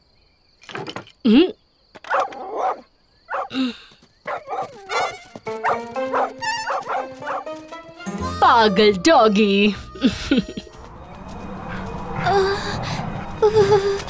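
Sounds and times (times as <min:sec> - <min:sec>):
cartoon animals yelping: 0:04.3 - 0:07.4
music with held notes: 0:05.4 - 0:10.9.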